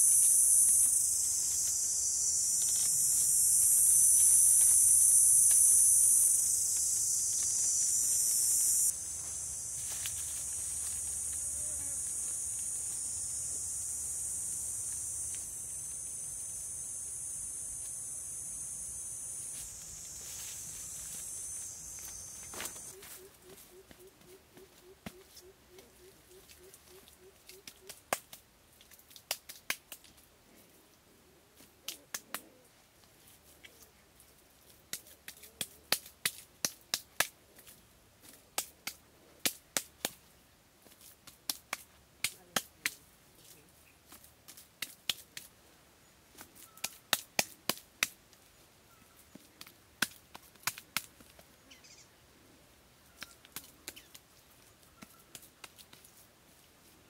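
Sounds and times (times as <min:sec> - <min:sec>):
hands slapping wet mud: 0:27.5 - 0:30.2, 0:41.0 - 0:43.0, 0:44.1 - 0:45.5.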